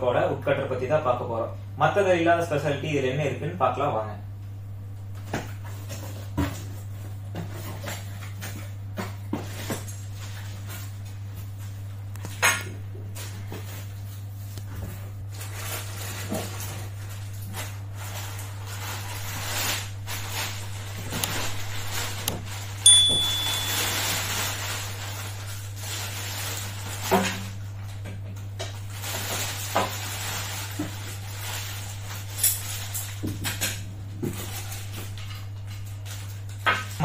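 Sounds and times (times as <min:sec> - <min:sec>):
plastic and cardboard rustling: 0:05.2 - 0:12.4, 0:13.0 - 0:33.6, 0:34.2 - 0:37.0
sharp hit with ringing tone: 0:22.9 - 0:24.2.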